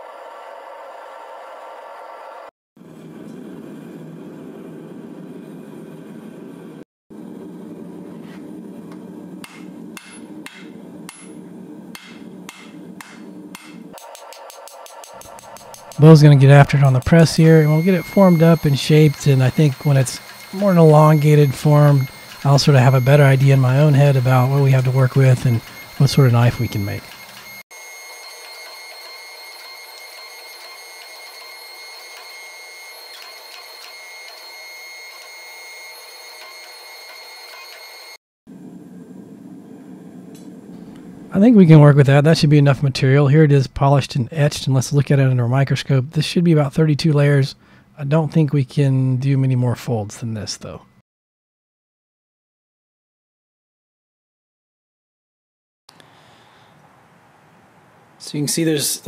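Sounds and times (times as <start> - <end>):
hammer blows on anvil: 9.4 - 11.4, 12.0 - 23.0
hydraulic press whining: 13.9 - 38.2.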